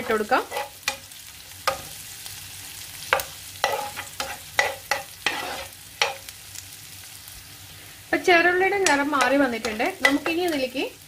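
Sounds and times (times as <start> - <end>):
steel spoon scraping pan: 0.0 - 1.1, 3.1 - 6.2
food sizzling in oil: 0.0 - 11.0.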